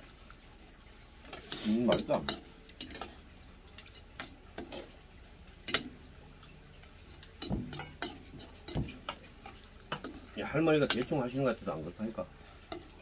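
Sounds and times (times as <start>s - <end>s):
metal spoon clinking on steel bowl: 7.2s - 9.3s.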